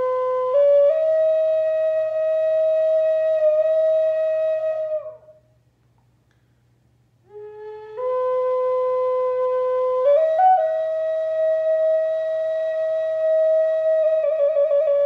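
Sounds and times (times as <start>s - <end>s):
wooden flute melody: 0.0s - 5.6s, 7.2s - 15.0s.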